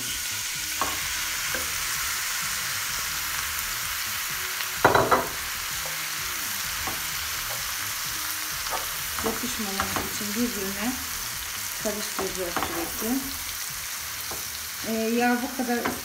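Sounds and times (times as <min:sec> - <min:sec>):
meat sizzling in butter: 0:00.0 - 0:16.0
wooden spoon stirring: 0:08.6 - 0:10.8.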